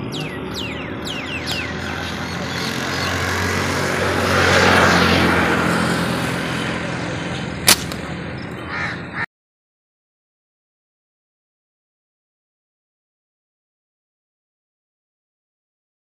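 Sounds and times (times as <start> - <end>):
outdoor wind noise: 0.0 - 9.2
sharp click: 7.6 - 8.1.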